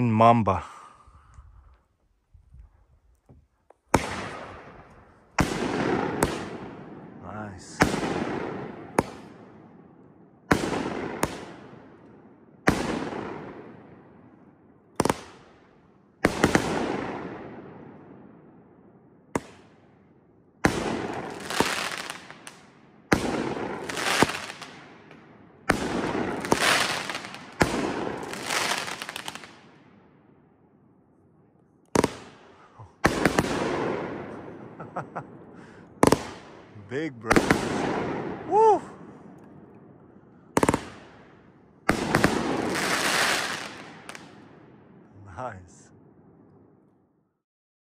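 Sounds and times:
firework cake firing shots: 3.9s - 4.8s, 5.4s - 7.0s, 7.8s - 9.4s, 10.5s - 11.8s, 12.7s - 13.7s, 15.0s - 15.4s, 16.2s - 17.5s, 19.4s - 19.7s, 20.7s - 25.0s, 25.7s - 29.8s, 31.9s - 34.4s, 36.0s - 38.5s, 40.6s - 41.2s, 41.9s - 44.4s.

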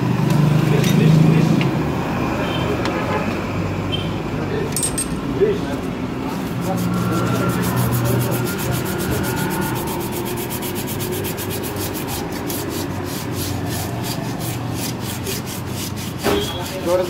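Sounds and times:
rhythmic scraping of brake shoes: 5.5s - 17.0s.

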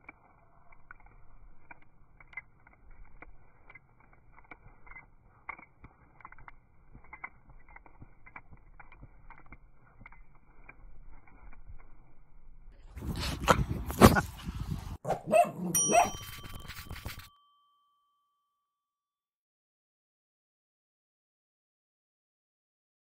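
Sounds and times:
puppy shaking its head: 15.9s - 17.3s.

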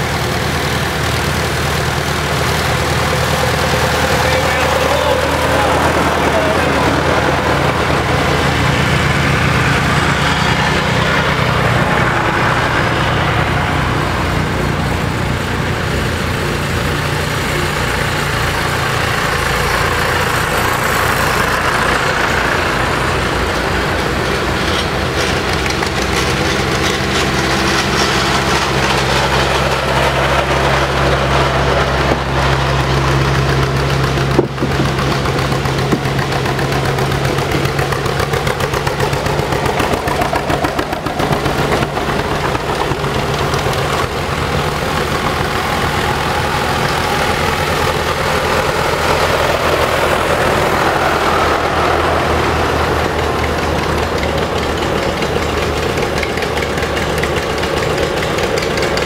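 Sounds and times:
tractor engines running: 0.0s - 59.0s.

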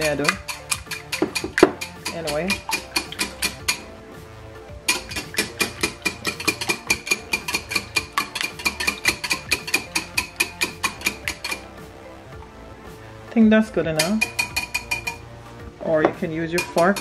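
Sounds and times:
whisk clicking against bowl: 0.0s - 3.9s, 4.9s - 11.7s, 14.0s - 15.2s, 16.5s - 17.0s.

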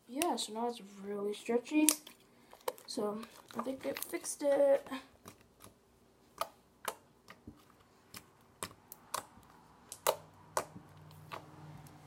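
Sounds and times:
slime clicking and popping: 5.2s - 7.4s, 8.1s - 11.5s.

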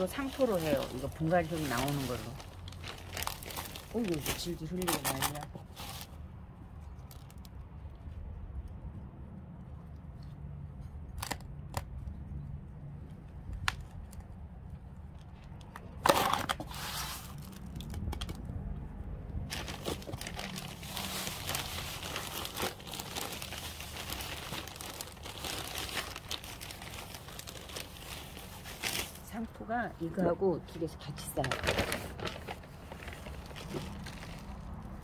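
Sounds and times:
plastic bag crinkling: 0.0s - 6.2s, 16.0s - 18.2s, 19.4s - 29.5s, 31.1s - 35.0s.

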